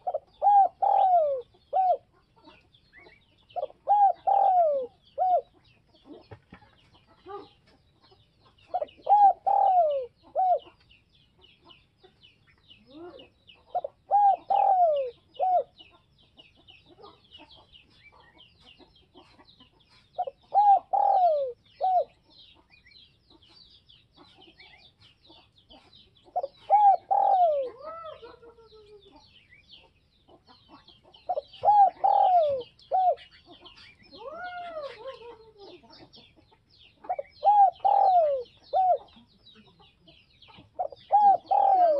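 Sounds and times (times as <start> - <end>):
dove cooing: 0.0 - 6.3, 8.6 - 10.8, 12.9 - 15.9, 20.2 - 22.3, 25.7 - 29.2, 31.3 - 36.3, 37.0 - 39.7, 40.5 - 41.9
faint twittering of small birds: 0.0 - 41.9.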